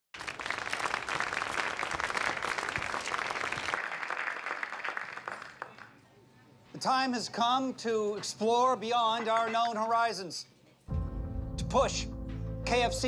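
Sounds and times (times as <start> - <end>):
audience applauding: 0.2 - 6.0.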